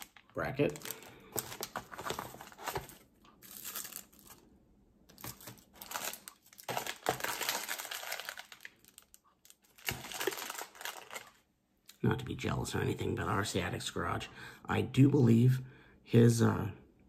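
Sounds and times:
plastic bag crinkling: 0.0s - 4.5s, 5.1s - 11.4s.

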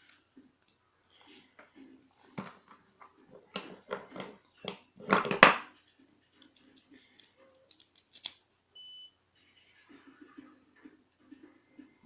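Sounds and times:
metal parts clicking and scraping: 2.4s - 5.7s.

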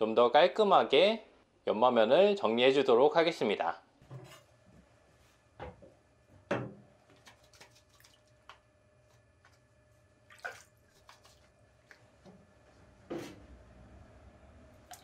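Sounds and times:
water dripping into a tub: 10.2s - 12.0s, 14.8s - 15.0s.

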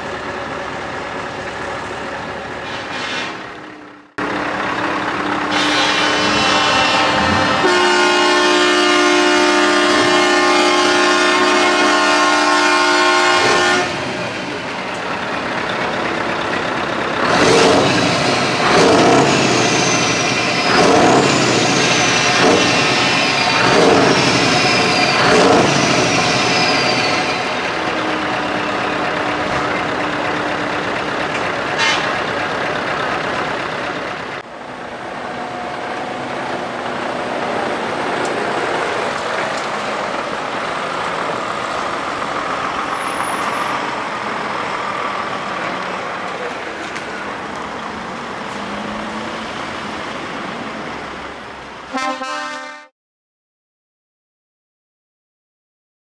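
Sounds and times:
heavy trucks driving past: 0.0s - 52.8s
truck horn toots: 5.4s - 14.2s, 31.7s - 32.3s, 51.9s - 52.9s.

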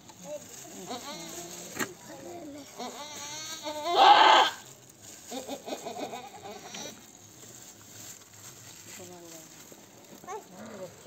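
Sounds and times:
goat bleating: 0.8s - 1.5s, 2.6s - 4.6s, 5.5s - 7.0s.

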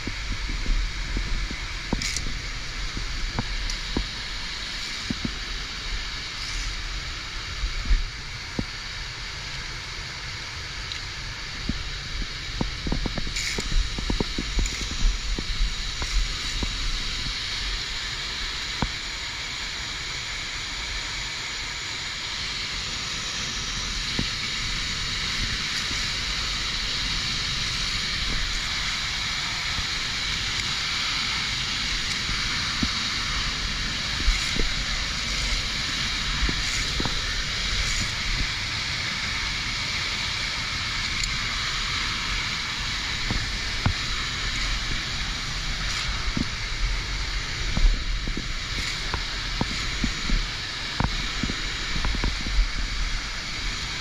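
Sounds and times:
low rumble: 0.0s - 10.4s
waterfall rushing: 0.0s - 54.0s.

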